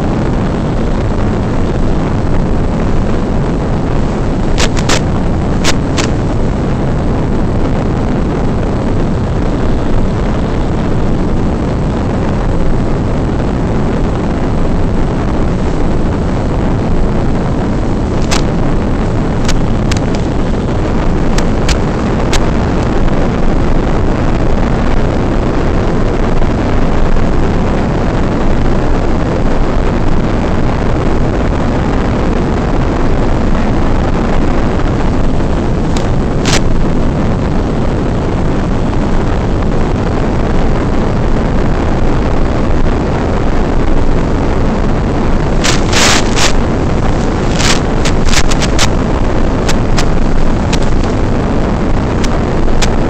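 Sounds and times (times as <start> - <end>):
steady loud rushing noise: 0.0 - 53.0
short signal crackles: 3.8 - 6.4, 17.8 - 23.5, 35.3 - 36.9, 45.0 - 53.0.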